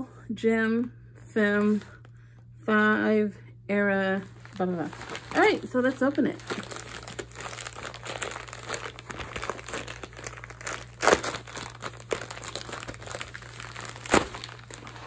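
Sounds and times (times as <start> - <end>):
plastic bag crackles: 4.4 - 15.0
plastic bag crinkling: 4.4 - 15.0.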